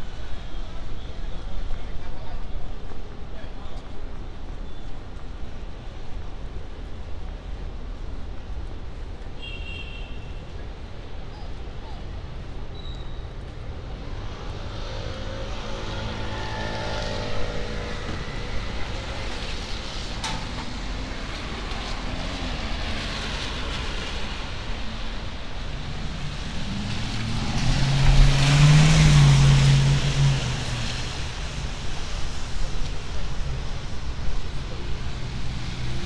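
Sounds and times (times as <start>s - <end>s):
cars passing on wet road: 13.2s - 36.0s
vehicle engine drone: 25.4s - 33.7s.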